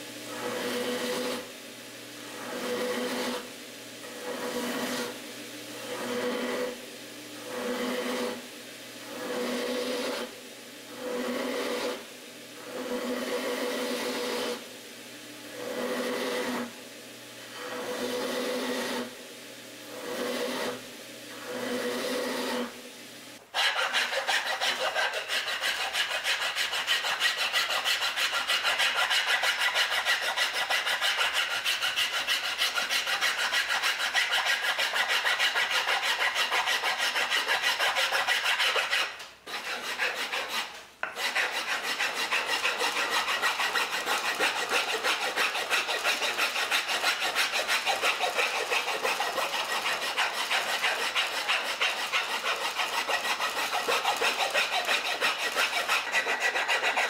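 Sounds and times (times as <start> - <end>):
file rasping on wood: 5.9 - 6.8, 11.0 - 12.0, 23.5 - 57.0.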